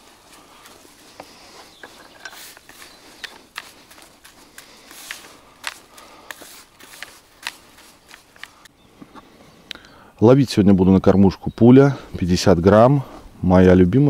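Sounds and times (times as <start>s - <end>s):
light rustle: 0.0s - 9.3s
small hard items clicking: 0.6s - 8.7s.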